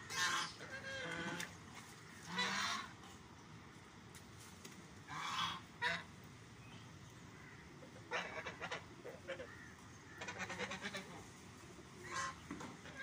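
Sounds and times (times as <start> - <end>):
poultry honking: 2.3 - 2.9, 8.1 - 11.2, 12.0 - 12.4.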